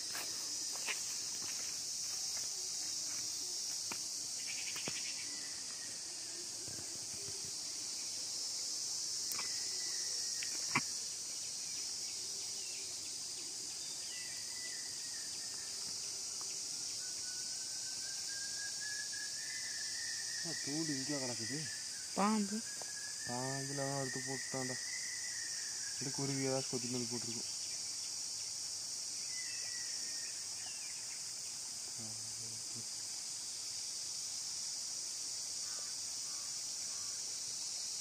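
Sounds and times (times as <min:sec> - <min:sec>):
insect chorus drone: 0:00.0 - 0:38.0
faint bird chirps: 0:09.3 - 0:27.5.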